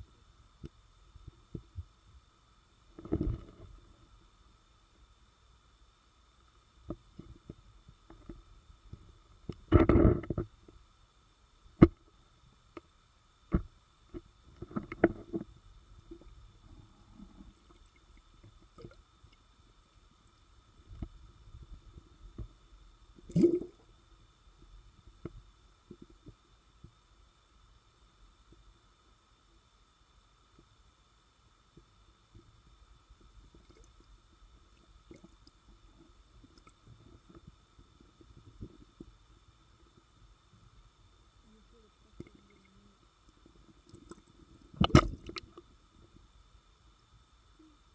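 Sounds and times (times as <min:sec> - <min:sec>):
faint steady hum: 0:00.0 - 0:47.9
soft low underwater pops: 0:43.3 - 0:45.7.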